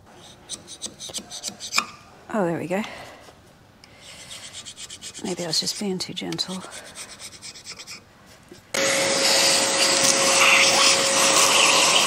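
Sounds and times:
scraper scraping on metal: 4.0 - 8.1
vacuum cleaner whine: 8.7 - 12.0.

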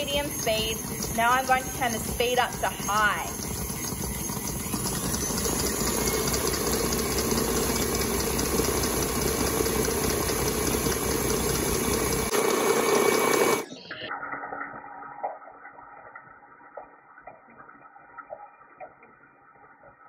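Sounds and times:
stand mixer whisking: 0.0 - 13.7.

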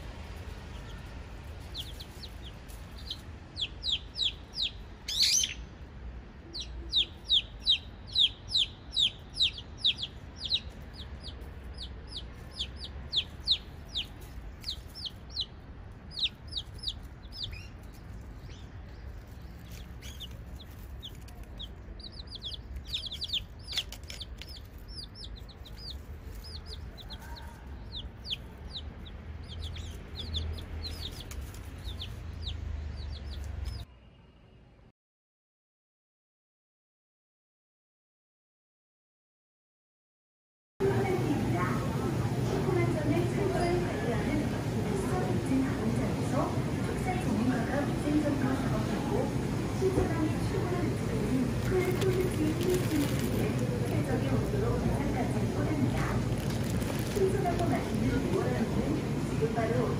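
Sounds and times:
steady low rumble: 0.0 - 33.8, 40.8 - 59.9
chicks peeping: 0.4 - 5.6, 6.4 - 33.8, 50.0 - 58.2.

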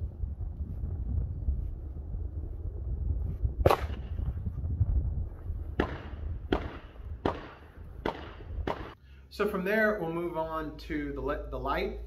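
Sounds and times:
wind buffeting microphone: 0.0 - 9.0
gunshots with echo: 5.8 - 9.0.

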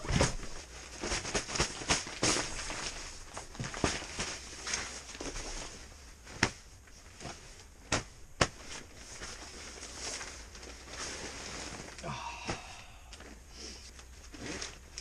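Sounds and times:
nylon fabric rustling: 0.0 - 13.0, 14.0 - 15.0.

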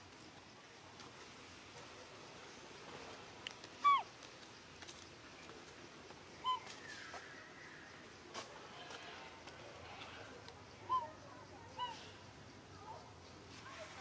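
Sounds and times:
high animal calls: 3.8 - 4.1.

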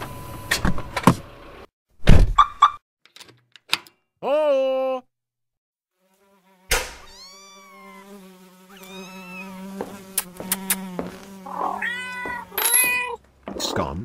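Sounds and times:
cat meowing: 7.0 - 9.6, 11.5 - 13.2.

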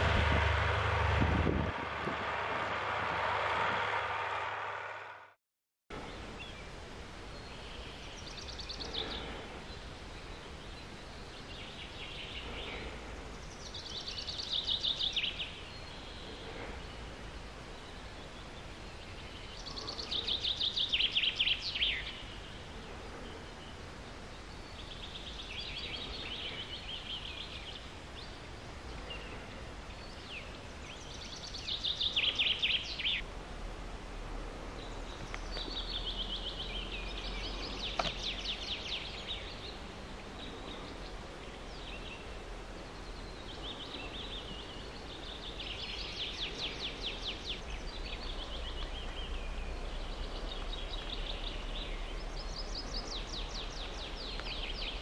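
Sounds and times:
low background hiss: 6.0 - 12.4.

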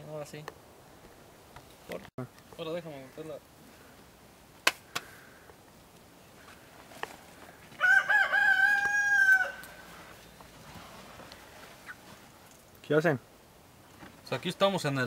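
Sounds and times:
rooster crowing: 7.7 - 10.2.

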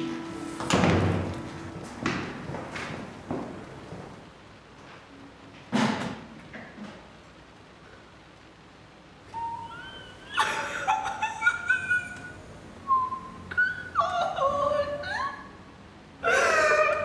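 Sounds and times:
woman sobbing: 9.6 - 12.3, 13.6 - 15.4, 16.2 - 17.0.

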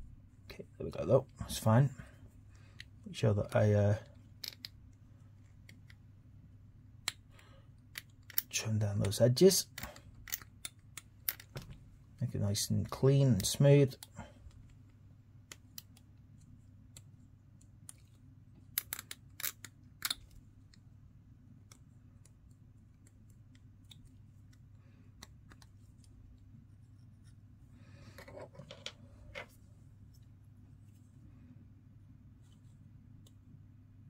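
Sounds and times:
soft rustle: 25.7 - 31.6, 32.3 - 33.5.

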